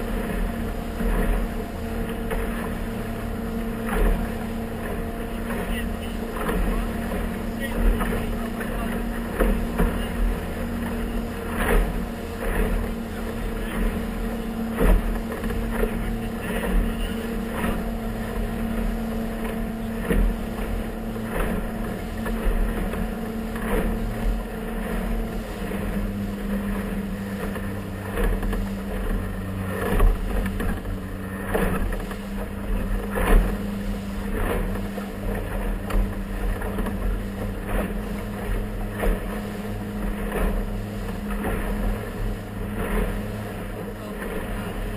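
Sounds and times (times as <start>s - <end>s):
hull knocking on waves: 0.0s - 44.9s
motorboat engine running: 0.0s - 44.9s.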